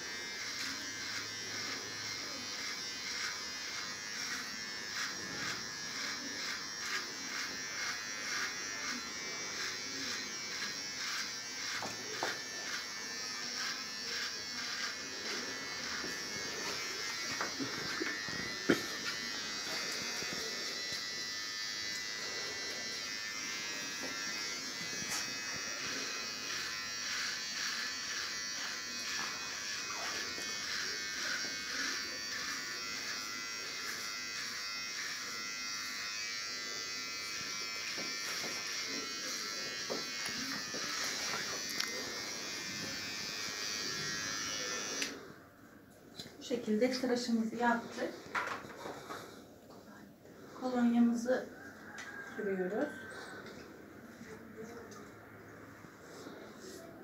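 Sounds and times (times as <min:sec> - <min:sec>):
electric shaver buzzing: 0:00.0 - 0:45.4.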